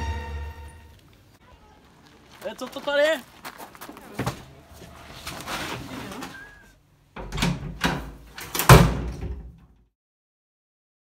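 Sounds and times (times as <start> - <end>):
door thrown open: 7.2 - 9.6.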